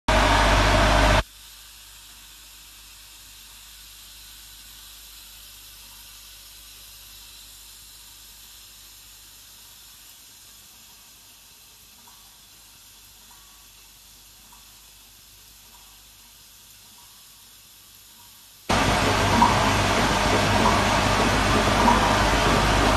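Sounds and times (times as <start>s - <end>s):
faint steady hiss: 1.2s - 22.9s
faint irregular ticks: 1.4s - 18.7s.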